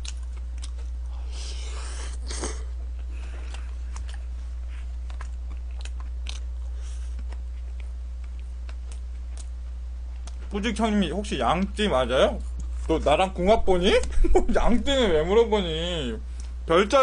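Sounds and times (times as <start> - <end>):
person chewing food: 0.0 - 10.6
steady low hum: 0.0 - 17.0.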